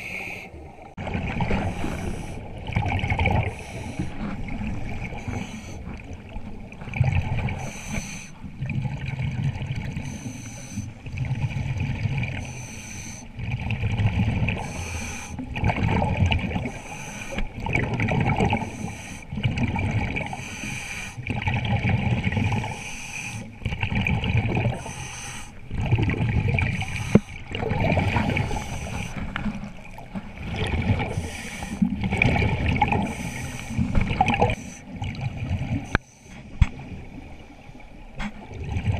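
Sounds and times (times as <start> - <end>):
exhaled bubbles gurgling: 0.0 - 38.9
regulator inhalation hiss: 7.6 - 8.3, 12.4 - 13.2, 14.6 - 15.4, 16.7 - 17.4, 18.7 - 19.3, 22.8 - 23.5, 24.8 - 25.6, 31.2 - 31.8.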